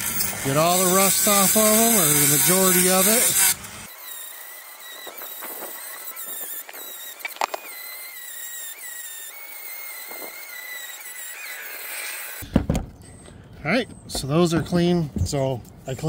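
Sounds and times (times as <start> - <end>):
rotary tool grinding metal: 0.0 - 12.4.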